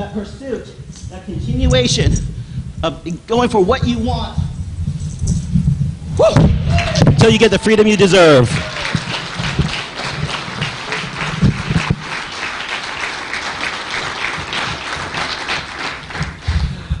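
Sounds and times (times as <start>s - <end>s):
low thumps: 0.7s - 12.3s, 14.3s - 17.0s
audience applauding: 6.6s - 17.0s.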